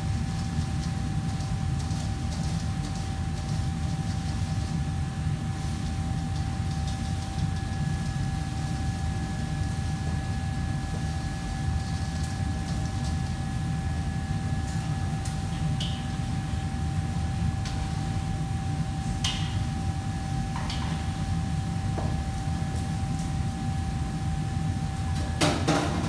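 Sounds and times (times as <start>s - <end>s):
kitchen machinery rumble: 14.6s - 26.0s.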